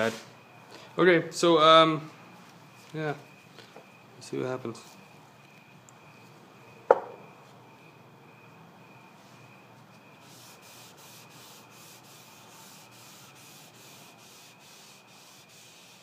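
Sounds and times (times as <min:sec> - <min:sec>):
thin background whine: 0:00.0 - 0:16.0
applicator scrubbing wooden board: 0:10.3 - 0:16.0.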